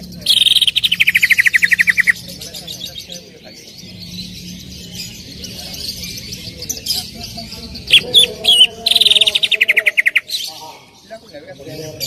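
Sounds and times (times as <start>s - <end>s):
bird chattering warble: 0.0s - 12.0s
sharp bird call: 0.2s - 2.2s.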